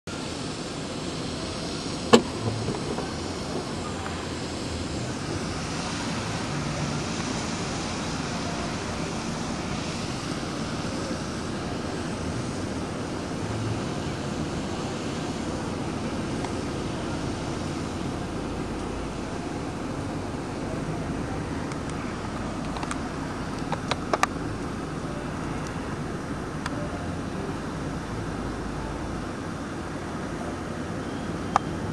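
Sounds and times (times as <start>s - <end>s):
car road and engine noise: 0.0s - 31.9s.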